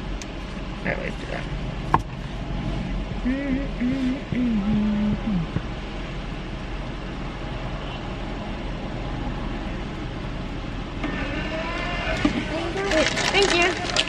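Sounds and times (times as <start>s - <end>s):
car engine idling: 0.0s - 14.0s
person humming: 3.2s - 5.6s.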